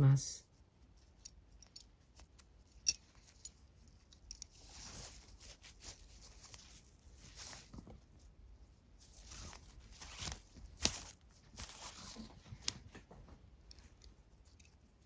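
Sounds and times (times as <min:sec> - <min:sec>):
cord rustling through buckle: 0:00.4 - 0:15.0
metal buckle clicks: 0:01.2 - 0:04.6.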